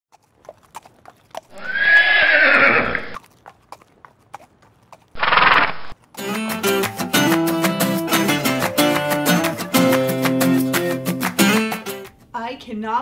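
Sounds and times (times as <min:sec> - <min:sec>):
hooves clip-clopping: 0:00.1 - 0:07.8
horse whinnying: 0:01.5 - 0:03.2, 0:05.2 - 0:06.0.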